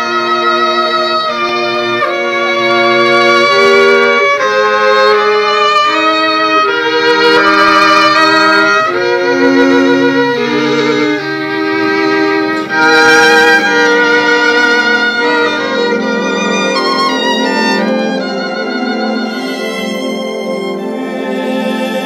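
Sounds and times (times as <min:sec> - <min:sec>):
bowed string instrument melody: 0:00.0 - 0:22.0
low held notes: 0:00.0 - 0:22.0.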